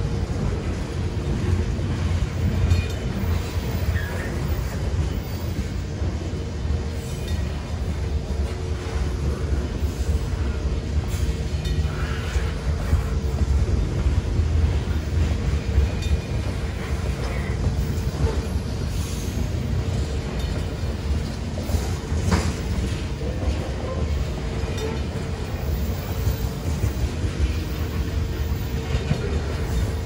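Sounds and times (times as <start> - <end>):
freight train wheels rumbling: 0.0 - 30.0.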